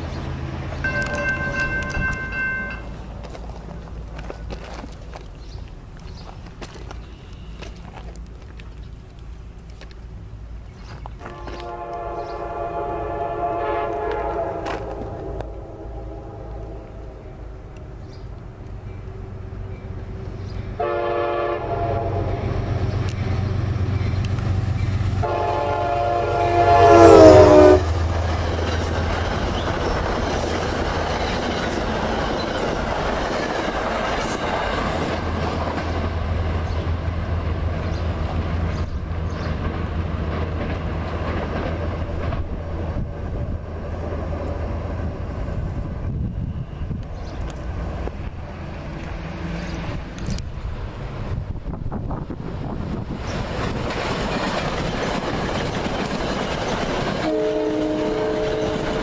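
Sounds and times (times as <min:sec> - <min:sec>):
wheels clacking on rails: 0:00.0 - 0:15.6, 0:16.4 - 0:59.0
diesel engine low drone: 0:00.0 - 0:20.9
locomotive air horn: 0:11.2 - 0:17.1, 0:20.8 - 0:22.6, 0:25.2 - 0:28.0, 0:57.2 - 0:59.0.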